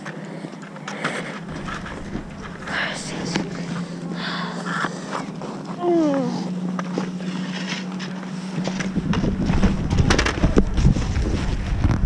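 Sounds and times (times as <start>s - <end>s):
chairlift machinery hum: 0.0s - 12.0s
wind buffeting microphone: 1.4s - 4.2s, 8.6s - 12.0s.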